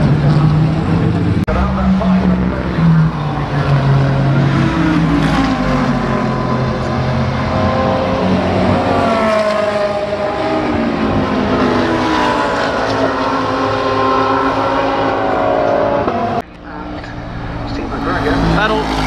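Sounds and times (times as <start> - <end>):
race car engines passing: 0.0 - 19.0.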